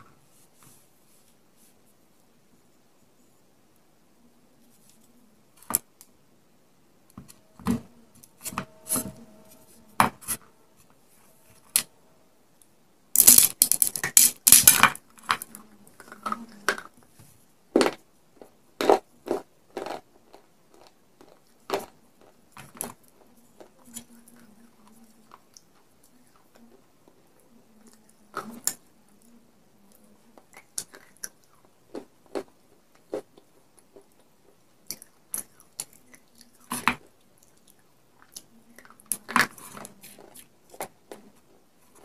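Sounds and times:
clay pot pieces crunching: 0:13.2 - 0:15.5.

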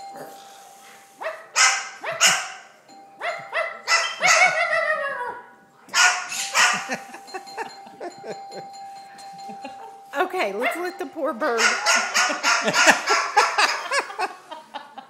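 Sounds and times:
cockatoo barking like a dog: 0:01.2 - 0:07.2, 0:11.6 - 0:14.1.

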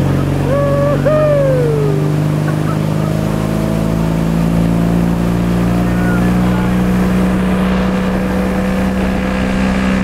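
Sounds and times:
boat engine running: 0:00.0 - 0:10.0
person whooping: 0:00.4 - 0:02.2.

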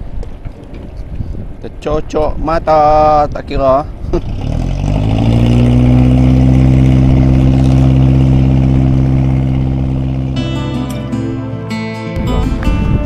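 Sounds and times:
boat engine running: 0:03.8 - 0:11.5.

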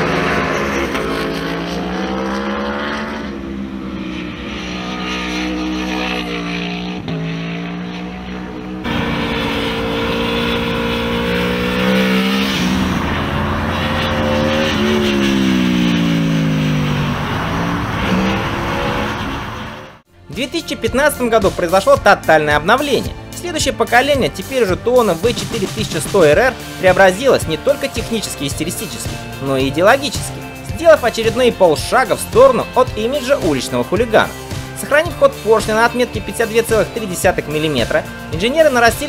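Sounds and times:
motorcycle engine at speed: 0:00.0 - 0:20.0.

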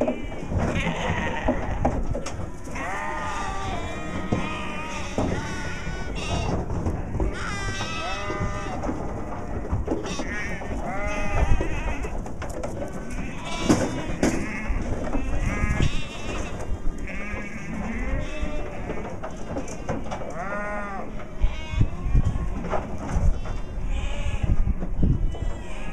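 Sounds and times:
sheep bleating: 0:00.0 - 0:01.9, 0:02.7 - 0:06.6, 0:07.3 - 0:12.1, 0:13.2 - 0:22.4.

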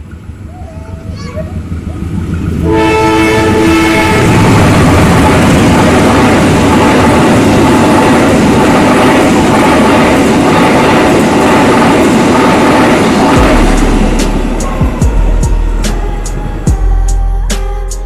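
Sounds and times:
train coaches rushing past: 0:00.0 - 0:18.0
two-note train horn: 0:02.6 - 0:04.6, 0:13.4 - 0:18.0.

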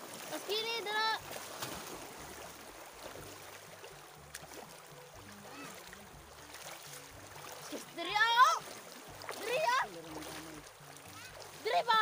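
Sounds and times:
people wading through river water: 0:00.0 - 0:12.0.

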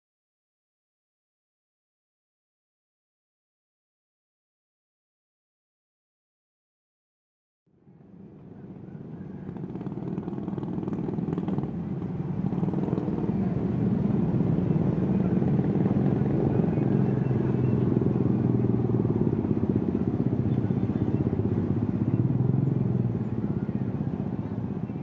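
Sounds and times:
low engine hum: 0:07.7 - 0:25.0
motorcycles and cars passing: 0:07.9 - 0:25.0.

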